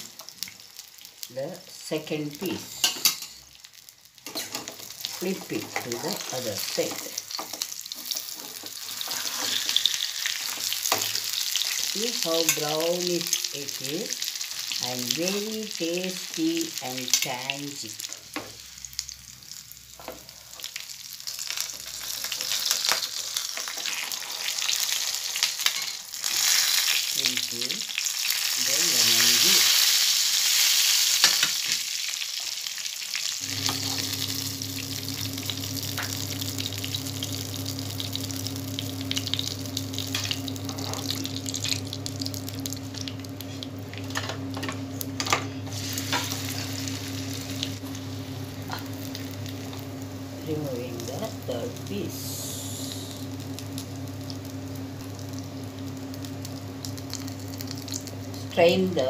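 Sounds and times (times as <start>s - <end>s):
fish sizzling in hot oil: 0.0s - 59.0s
steady low hum: 33.4s - 59.0s.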